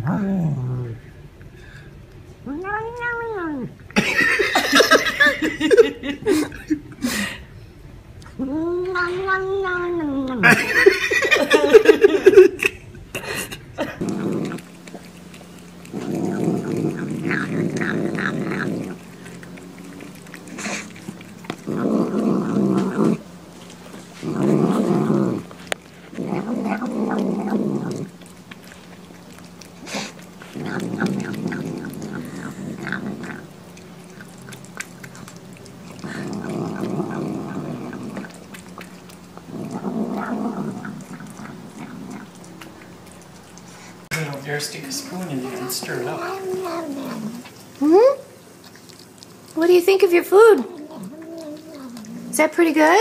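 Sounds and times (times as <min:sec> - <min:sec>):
cat growling: 0:02.4 - 0:07.6, 0:08.2 - 0:49.5, 0:50.6 - 0:52.5
cat meowing: 0:02.5 - 0:03.7, 0:08.4 - 0:10.4.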